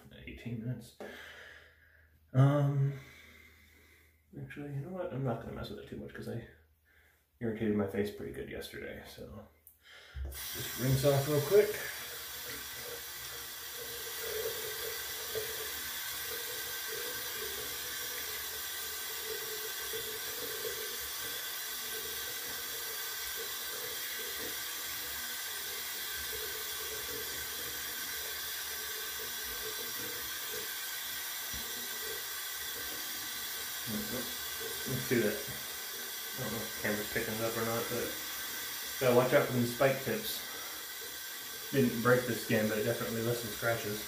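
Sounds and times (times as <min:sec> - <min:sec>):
tap running into sink: 0:10.2 - 0:35.7
face rinsing splashes: 0:10.3 - 0:44.0.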